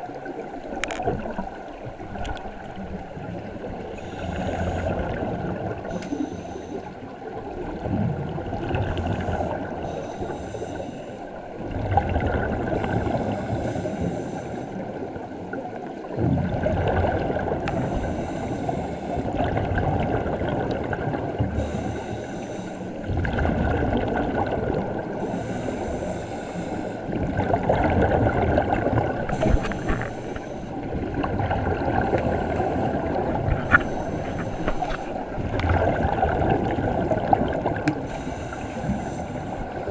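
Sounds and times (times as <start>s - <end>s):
underwater regulator breathing: 3.9s - 5.2s, 5.8s - 7.0s, 8.8s - 11.4s, 12.7s - 15.0s, 17.6s - 19.4s, 21.5s - 23.1s, 25.1s - 27.1s, 29.2s - 30.9s, 31.9s - 35.4s, 37.8s - 39.9s
bubbles gurgling: 7.2s - 9.8s, 11.5s - 13.4s, 15.6s - 17.7s, 19.3s - 21.6s, 23.1s - 25.2s, 27.1s - 30.0s, 30.8s - 33.8s, 35.1s - 38.1s.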